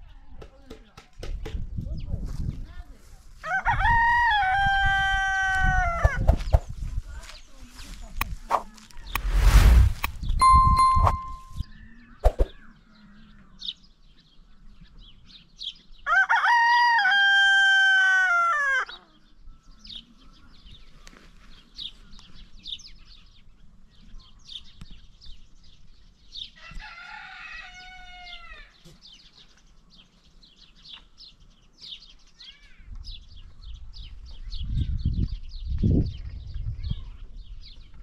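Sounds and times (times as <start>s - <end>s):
rooster crowing: 3.4s - 6.2s, 16.1s - 18.9s, 26.6s - 28.7s
bird chirps: 10.2s - 13.9s.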